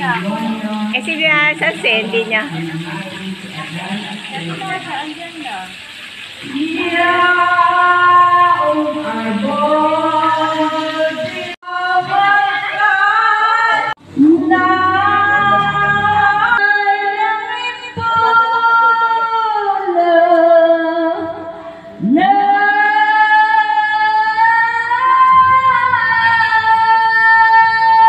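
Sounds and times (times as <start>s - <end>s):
woman singing long held notes: 6.4s - 28.0s.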